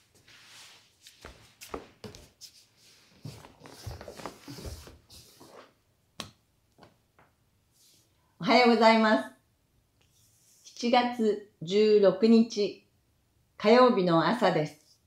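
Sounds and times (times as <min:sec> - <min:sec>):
bare feet on wooden floor: 0:00.0 - 0:05.8
clothing rustle: 0:00.0 - 0:05.8.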